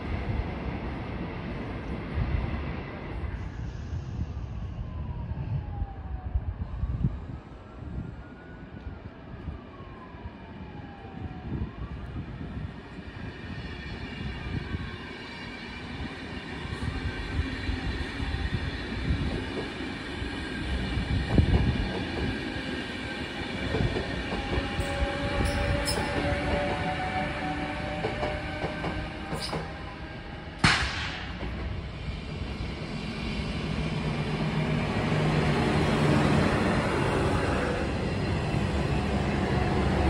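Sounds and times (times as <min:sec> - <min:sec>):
train wheels rumbling on rail: 0:12.6 - 0:40.0.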